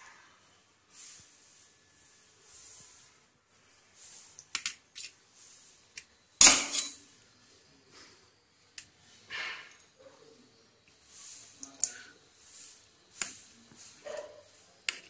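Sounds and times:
loud metal clank: 0:06.4 - 0:07.0
metal spoon scraping steel bowl: 0:06.4 - 0:07.0.

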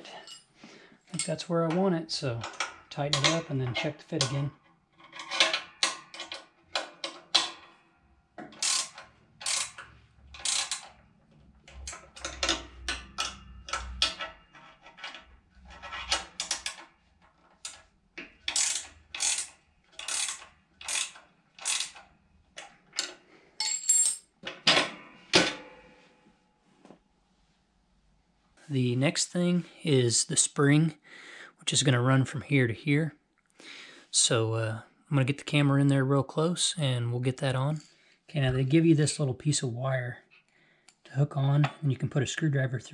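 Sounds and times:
ratcheting wrench rasp: 0:08.5 - 0:11.0, 0:18.4 - 0:22.1.

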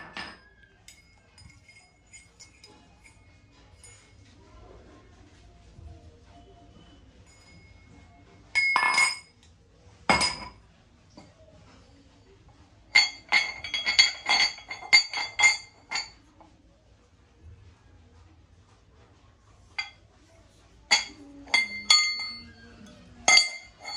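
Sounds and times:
brass utensils clinking: 0:00.0 - 0:04.1, 0:08.6 - 0:09.4, 0:12.9 - 0:16.2, 0:20.9 - 0:23.9.

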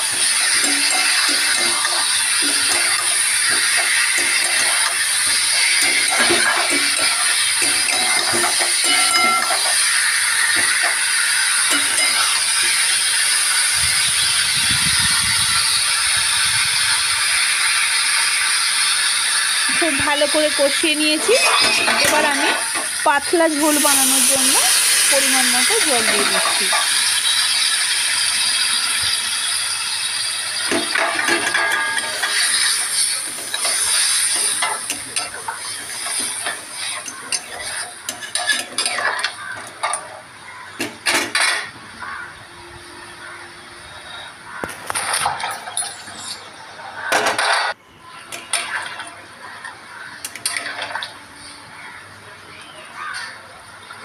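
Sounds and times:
food sizzling: 0:00.0 - 0:47.5, 0:48.1 - 0:52.0
frying hiss: 0:00.0 - 0:54.0
spatula scraping metal pan: 0:00.1 - 0:12.8, 0:21.0 - 0:27.4.

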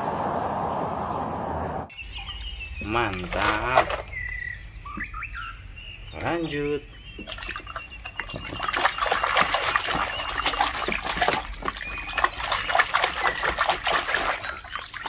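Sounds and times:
water splashing: 0:02.1 - 0:04.3, 0:06.2 - 0:15.0
plastic toys clattering: 0:03.0 - 0:04.2
squelching: 0:06.1 - 0:15.0.

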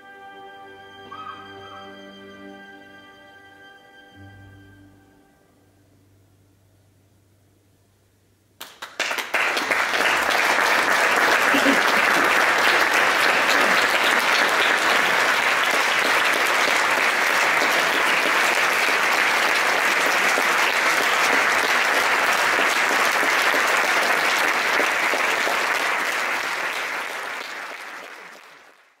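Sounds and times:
audience applauding: 0:08.6 - 0:29.0.

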